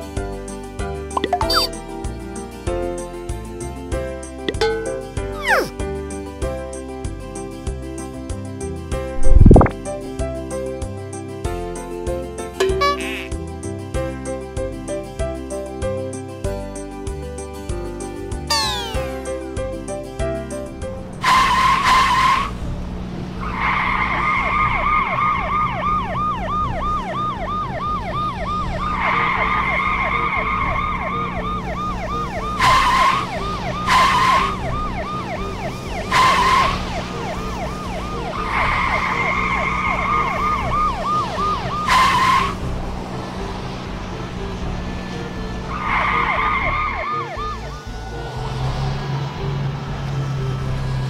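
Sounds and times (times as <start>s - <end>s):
cartoon police siren wailing: 1.2s - 1.7s, 5.4s - 5.7s, 18.5s - 19.2s, 23.8s - 42.6s, 45.7s - 48.8s.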